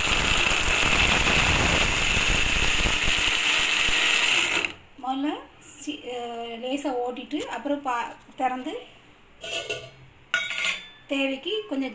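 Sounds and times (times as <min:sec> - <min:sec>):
high whine of mixer grinder: 0:00.0 - 0:04.8
mixer grinder blades chopping: 0:00.0 - 0:04.8.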